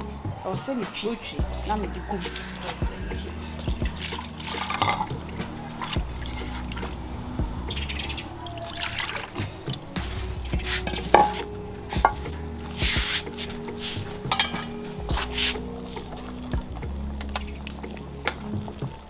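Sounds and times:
background music: 0.0 - 19.0
water sloshing in a bowl: 3.4 - 7.2, 8.3 - 10.0.

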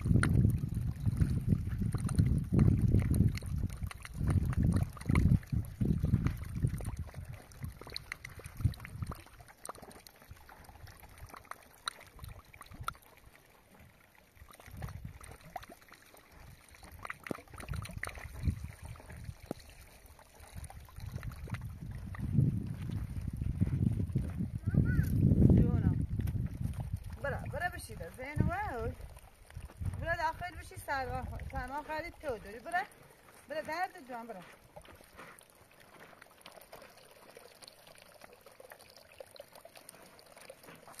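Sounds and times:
wind gusting against microphone: 0.0 - 9.2, 20.6 - 32.9.

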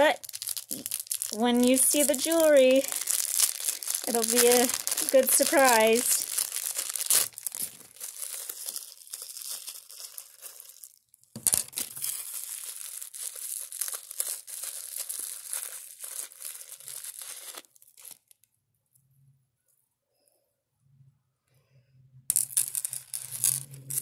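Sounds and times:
wrapping crinkling and tearing: 0.0 - 18.5.

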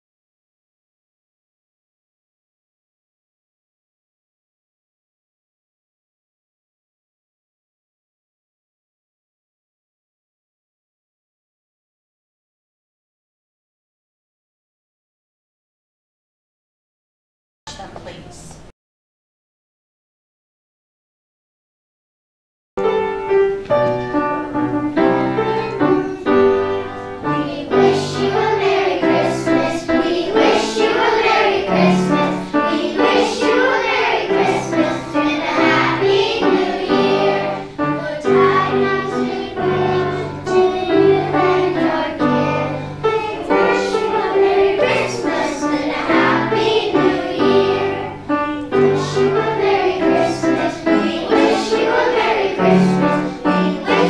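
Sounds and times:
children's choir singing: 22.8 - 54.0
instrumental accompaniment: 22.8 - 54.0.

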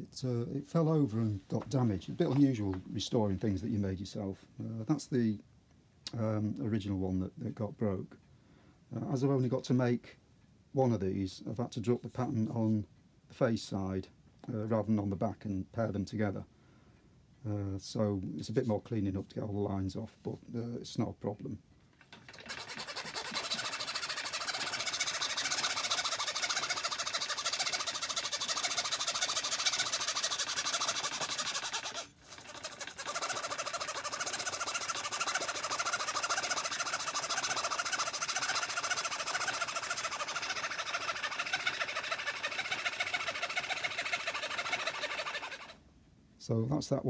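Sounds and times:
fretsaw rasping through wood: 22.1 - 45.8.

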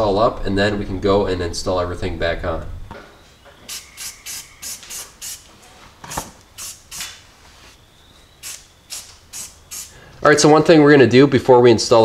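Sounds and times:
aerosol spray can hissing: 3.7 - 5.5, 6.1 - 7.1, 8.4 - 10.0.

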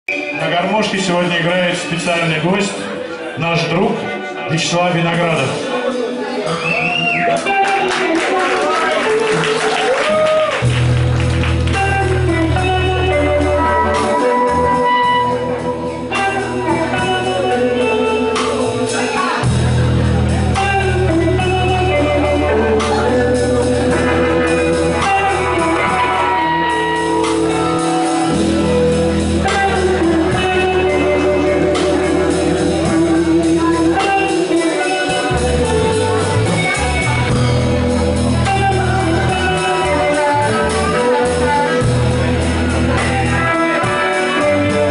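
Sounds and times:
drums: 0.0 - 44.9
electric guitar: 0.1 - 44.9
electric bass: 6.6 - 44.9
person singing: 20.4 - 37.2, 38.3 - 44.9.

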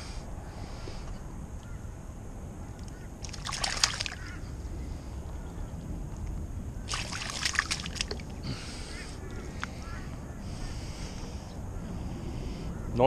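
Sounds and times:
fish splashing in shallow water: 2.9 - 4.4, 6.8 - 10.0.

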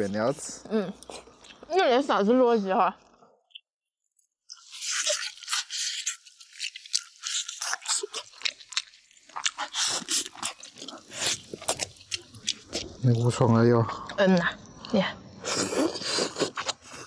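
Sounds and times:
person chewing meat off bone: 4.5 - 13.0, 15.5 - 17.0.

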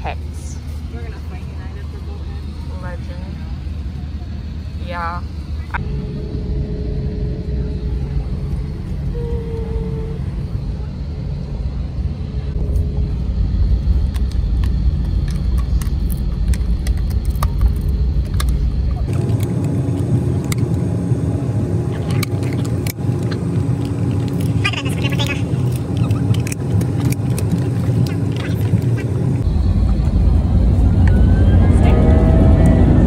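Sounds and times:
airliner cabin rumble: 0.0 - 33.0
steady hum: 0.0 - 33.0.

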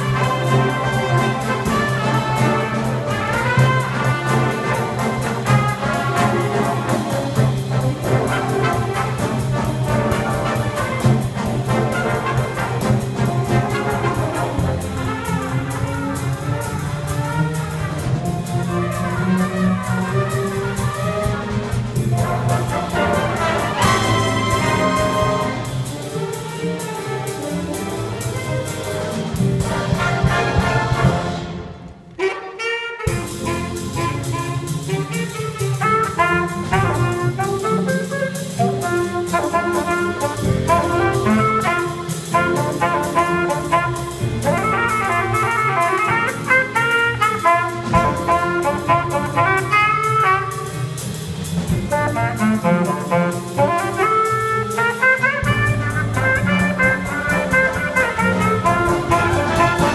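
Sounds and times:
jazz band playing: 0.0 - 59.9.

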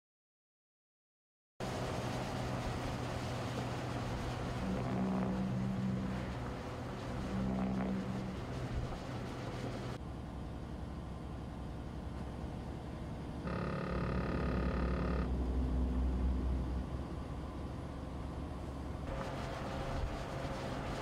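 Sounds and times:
truck engine and road rumble: 1.6 - 21.0
electronic buzzing tone: 4.6 - 9.1, 13.4 - 16.9.

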